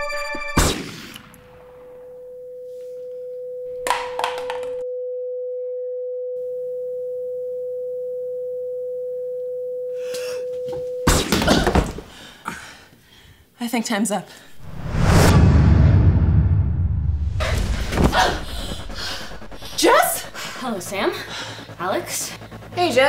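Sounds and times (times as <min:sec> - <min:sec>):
sudden loud noise burst: 0:14.5 - 0:22.4.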